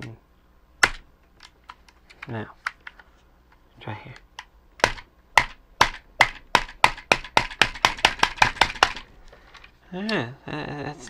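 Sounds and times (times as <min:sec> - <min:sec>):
fingers rapping on plastic: 0:04.8 - 0:09.1.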